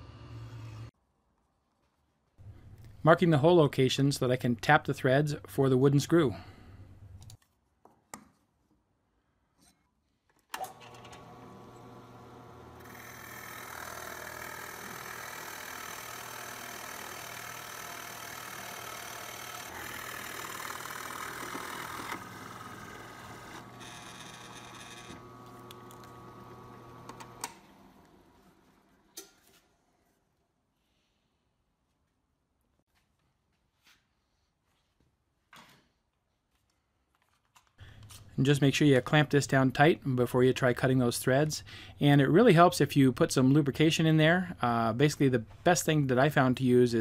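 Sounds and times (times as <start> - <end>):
drill press motor running: 10.6 - 28.9
drill bit boring into wood: 10.7 - 27.5.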